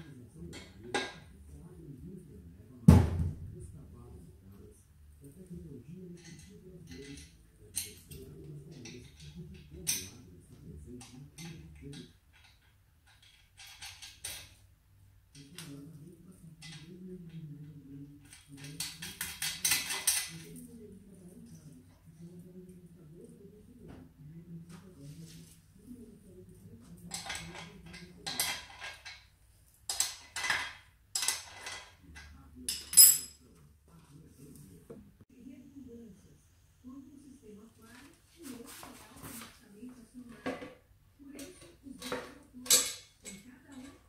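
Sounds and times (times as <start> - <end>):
metal spanner clinking and scraping: 29.9 - 32.0, 32.7 - 33.4.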